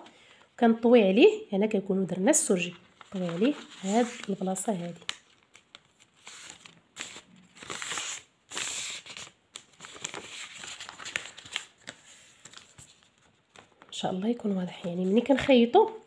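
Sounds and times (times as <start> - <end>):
paper rustling and crinkling: 2.6 - 14.0.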